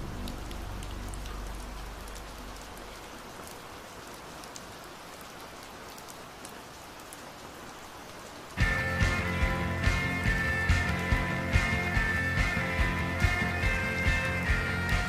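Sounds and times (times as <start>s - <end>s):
steady rain: 0.0s - 15.0s
slowed song: 8.6s - 15.0s.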